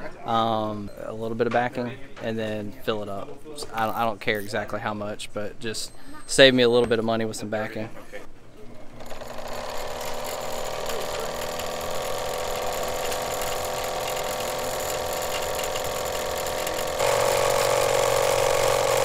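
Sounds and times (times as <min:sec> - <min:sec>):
line-winding machine motor whine: 0:09.0 - 0:19.0.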